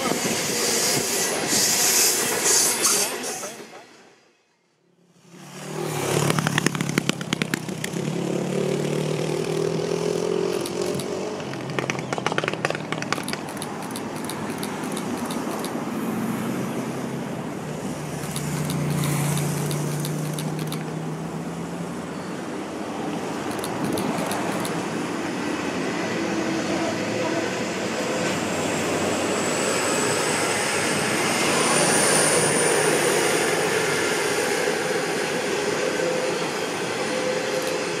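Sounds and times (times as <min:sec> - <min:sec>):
train rolling noise: 0:00.0 - 0:04.2, 0:05.9 - 0:16.3, 0:17.2 - 0:21.0, 0:22.4 - 0:38.0
diesel locomotive engine hum: 0:00.0 - 0:38.0
wheels clicking over rail: 0:10.5 - 0:15.8.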